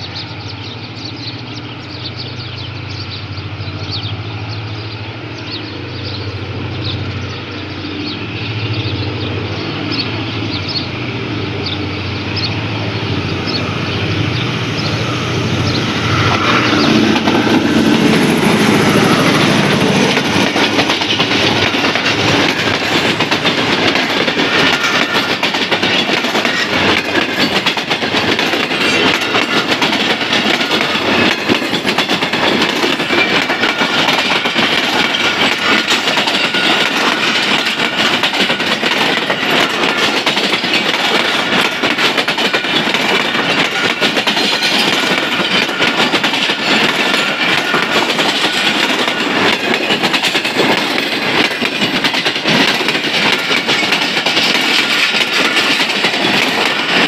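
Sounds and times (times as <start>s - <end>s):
train wheels rushing on rails: 0.0s - 57.0s
wheels clicking over rail joints: 15.7s - 57.0s.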